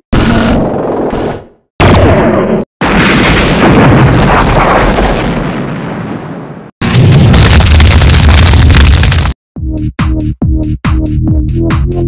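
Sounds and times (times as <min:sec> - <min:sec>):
cartoon explosion blast: 0:00.2 - 0:09.2
roar of flames: 0:00.2 - 0:09.3.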